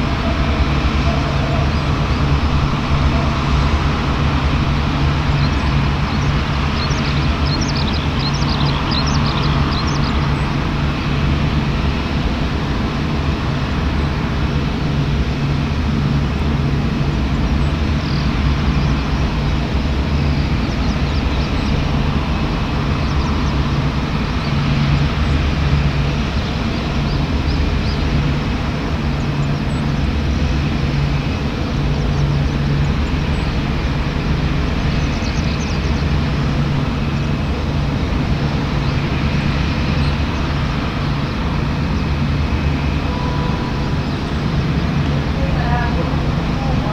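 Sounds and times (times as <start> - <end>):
jet engines hum and hiss: 0.0 - 46.9.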